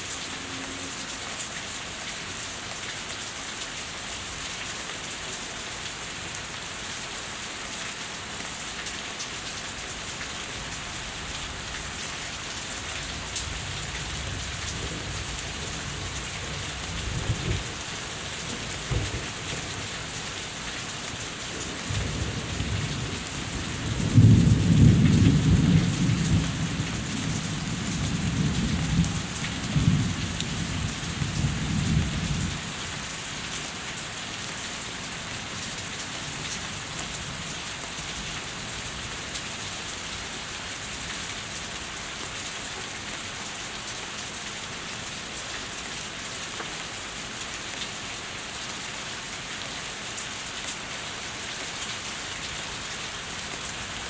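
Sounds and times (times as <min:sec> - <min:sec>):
steady rain: 0:00.0 - 0:54.0
rolling thunder: 0:23.9 - 0:32.4.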